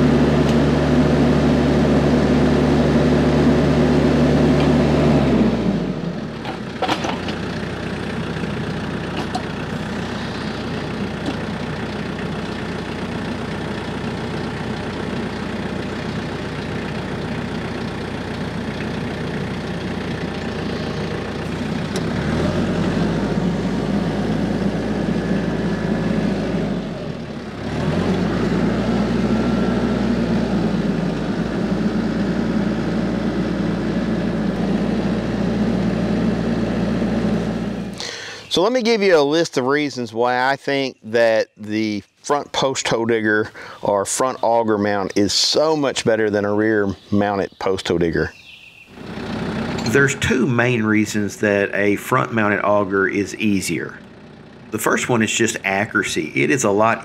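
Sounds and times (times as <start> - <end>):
tractor diesel engine revving: 0.0 - 39.4, 42.6 - 57.0.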